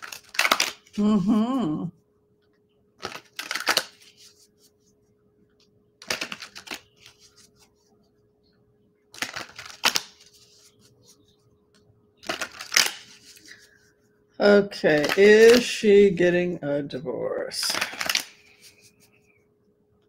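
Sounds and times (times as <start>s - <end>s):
cards being shuffled: 0.0s - 1.0s, 3.0s - 4.8s, 6.0s - 7.9s, 9.1s - 11.3s, 12.2s - 13.8s, 14.8s - 15.9s, 17.6s - 19.2s.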